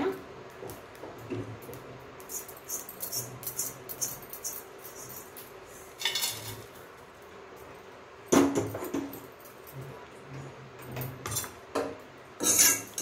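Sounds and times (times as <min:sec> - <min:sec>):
spices rattling in a metal pan: 0:02.0 - 0:06.8, 0:12.4 - 0:13.0.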